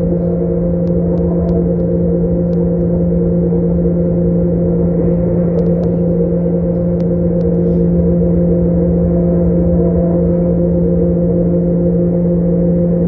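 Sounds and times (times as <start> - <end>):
train engine drone: 0.0 - 13.0
wheels rumbling on track: 0.0 - 13.0.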